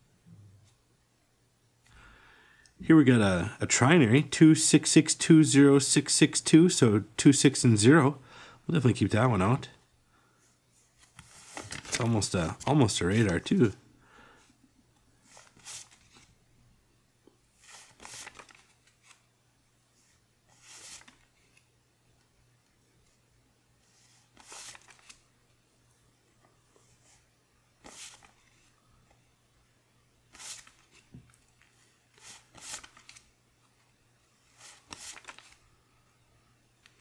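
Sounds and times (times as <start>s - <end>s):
paper bills rustling: 10.9s - 13.8s, 15.3s - 16.4s, 17.6s - 19.3s, 20.5s - 21.7s, 24.0s - 25.3s, 27.8s - 28.8s, 30.3s - 33.4s, 34.4s - 35.7s.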